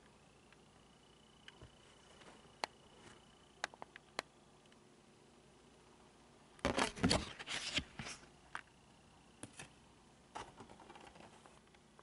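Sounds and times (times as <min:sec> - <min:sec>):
cardboard rustling and scraping: 0:06.6 - 0:08.3.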